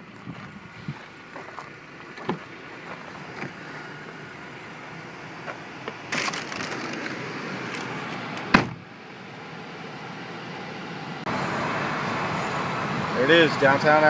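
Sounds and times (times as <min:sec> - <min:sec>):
low car interior noise: 0:00.0 - 0:11.2
clicks and rustling in car: 0:05.4 - 0:07.1.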